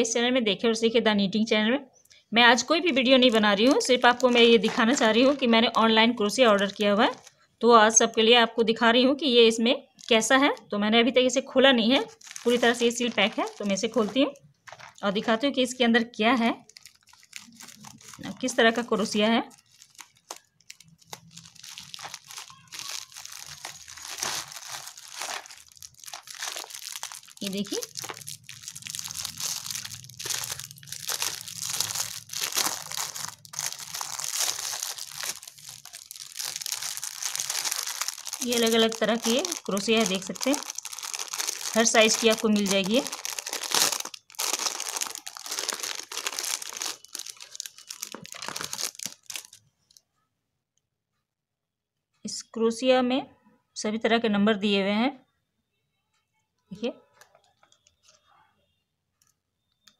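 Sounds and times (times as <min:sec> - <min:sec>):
plastic bag crinkling and rustling: 0:02.5 - 0:07.4, 0:09.9 - 0:10.7, 0:11.8 - 0:15.3, 0:16.6 - 0:50.0.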